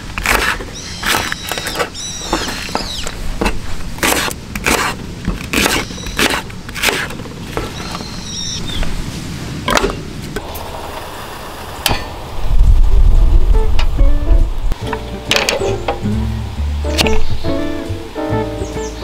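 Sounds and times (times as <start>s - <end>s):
bird chirping: 0.7s - 3.2s, 5.6s - 6.4s, 7.6s - 8.9s, 15.6s - 19.0s
background music with low beat: 13.3s - 18.9s.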